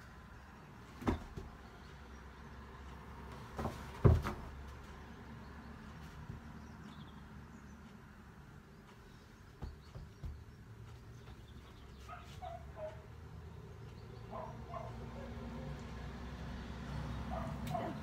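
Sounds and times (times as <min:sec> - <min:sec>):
paws knocking on floor: 0:09.5 - 0:12.6.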